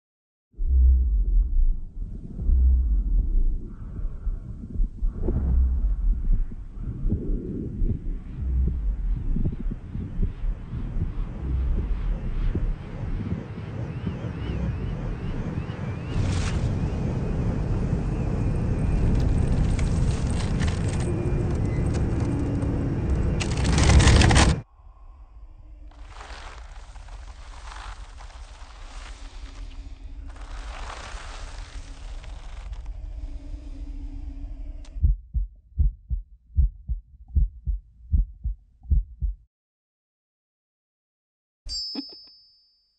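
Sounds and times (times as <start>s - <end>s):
loud dense rumbling: 0.6s - 37.8s
heartbeat thudding: 0.9s - 15.7s, 34.9s - 39.5s
hiss with low drone: 3.5s - 20.2s, 24.7s - 35.0s.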